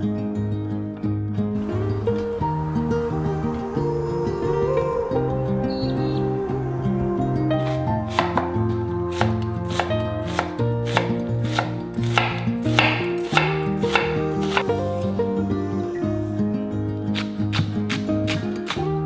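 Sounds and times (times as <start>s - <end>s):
background music: 0.0s - 19.0s
knife chopping on cutting board: 7.7s - 14.7s.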